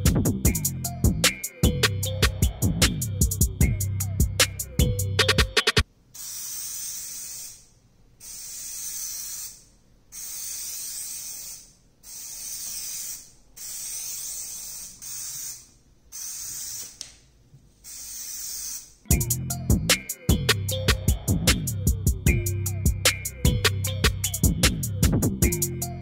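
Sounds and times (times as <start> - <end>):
aerosol can spraying: 6.2 - 17.1, 17.8 - 19.0.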